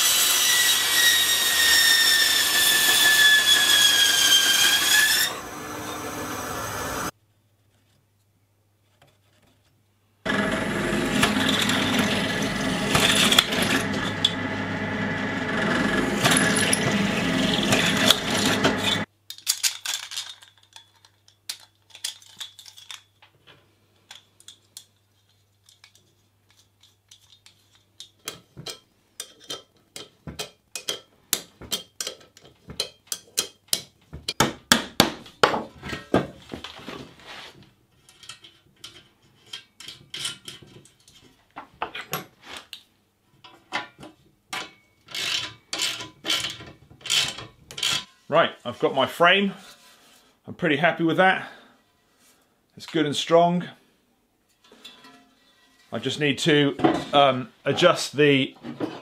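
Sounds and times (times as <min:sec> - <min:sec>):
drill press running: 0:10.3 - 0:19.1.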